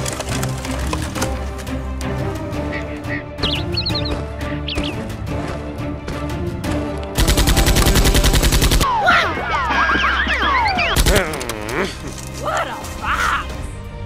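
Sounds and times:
machine-gun fire: 0:07.2 - 0:08.8.

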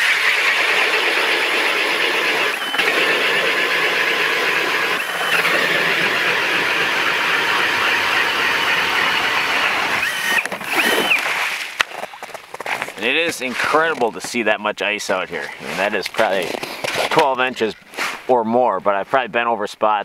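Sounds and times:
auger blades cutting ice: 0:00.0 - 0:07.8, 0:09.4 - 0:14.3, 0:15.4 - 0:18.2
drill motor whirring: 0:00.0 - 0:11.4.

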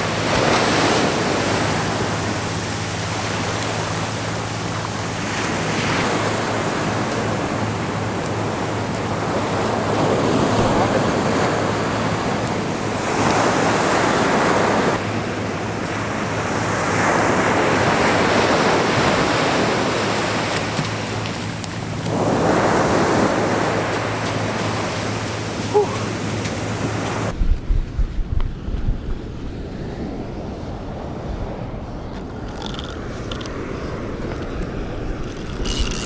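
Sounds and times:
ocean surf breaking: 0:00.0 - 0:27.4.

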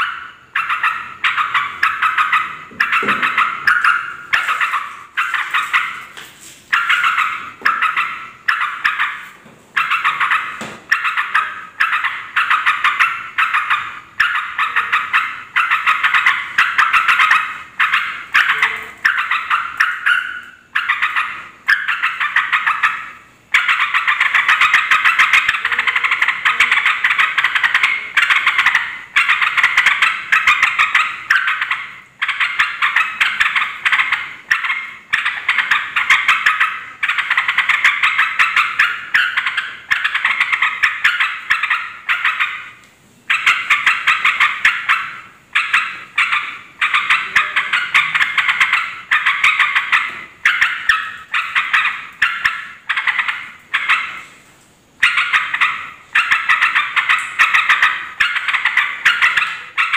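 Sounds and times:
bulbul chattering calls: 0:00.0 - 0:42.6.

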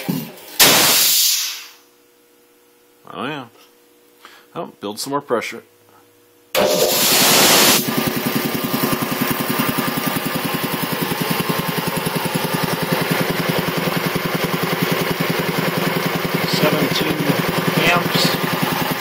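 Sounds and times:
air compressor pumping: 0:00.6 - 0:01.8, 0:06.6 - 0:19.0
loud air hiss: 0:00.6 - 0:01.8, 0:06.6 - 0:07.9.

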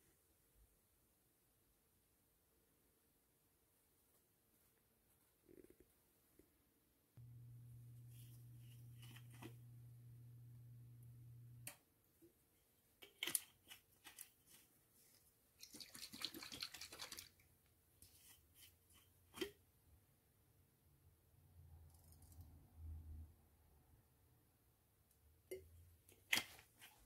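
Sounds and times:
low steady hum: 0:07.2 - 0:11.8.

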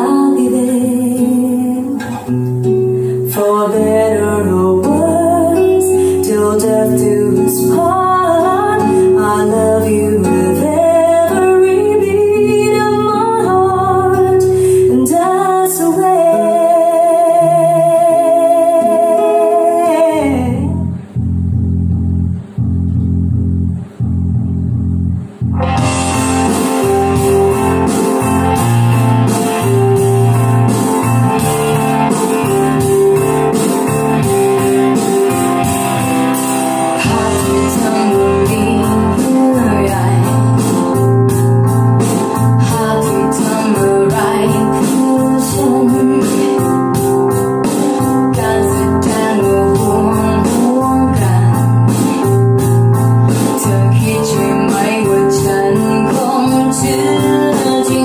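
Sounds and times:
keyboard music with steady beat: 0:20.8 - 0:58.0.

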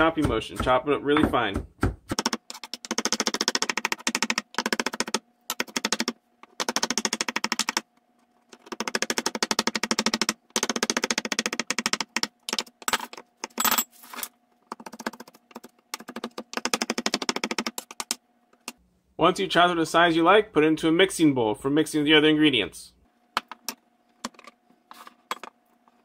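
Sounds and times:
knife chopping on wooden board: 0:00.0 - 0:02.2.

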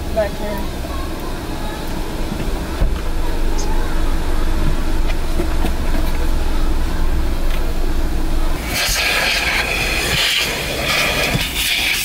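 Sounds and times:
vacuum droning: 0:00.0 - 0:12.0
rushing air hiss: 0:08.6 - 0:12.0.

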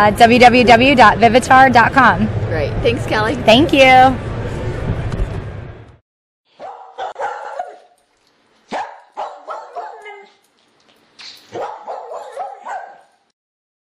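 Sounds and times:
dog barking: 0:06.6 - 0:08.0, 0:08.7 - 0:10.4, 0:11.5 - 0:13.1.

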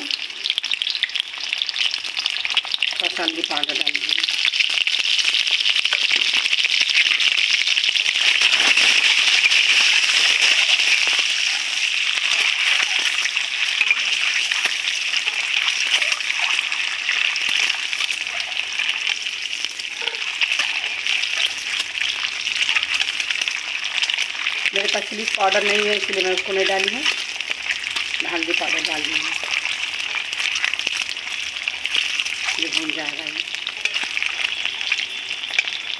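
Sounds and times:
eggs sizzling in hot oil: 0:00.0 - 0:35.9
metal spatula in a pan: 0:08.1 - 0:35.9.

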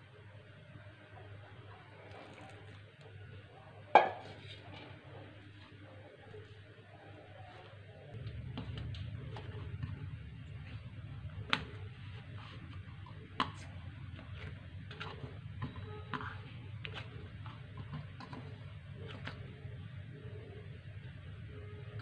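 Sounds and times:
dough kneaded against plate: 0:07.4 - 0:22.0.

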